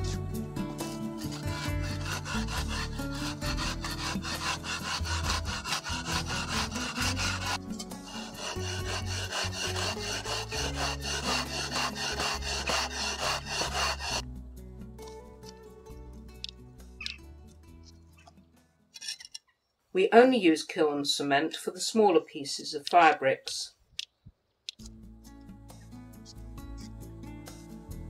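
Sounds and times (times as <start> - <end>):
hand tool scraping firebrick: 0.0 - 14.2.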